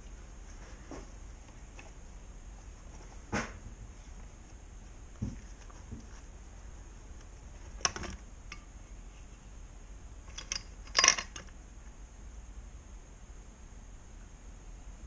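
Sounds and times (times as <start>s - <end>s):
metallic clinks and knocks: 10.3s - 11.5s.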